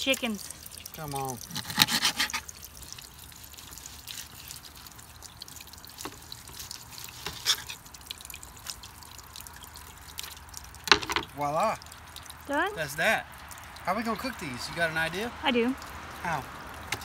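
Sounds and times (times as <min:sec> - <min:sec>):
water dripping and trickling: 0:00.0 - 0:17.0
light taps and scrapes: 0:01.5 - 0:02.5, 0:06.0 - 0:07.8.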